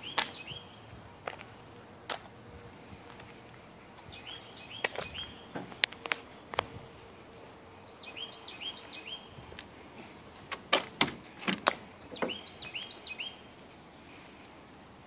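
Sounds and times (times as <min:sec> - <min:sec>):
songbird chirping: 0:00.0 - 0:01.5, 0:03.5 - 0:06.7, 0:07.7 - 0:14.6.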